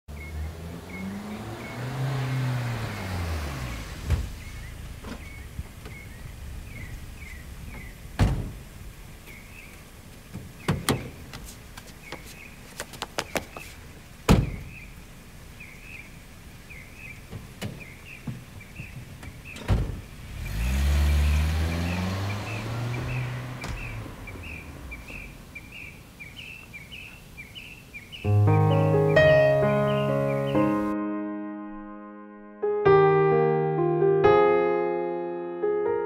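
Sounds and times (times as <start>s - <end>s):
car driving past: 0.1s - 8.8s, 20.0s - 25.9s
sharp knocks: 10.3s - 11.4s.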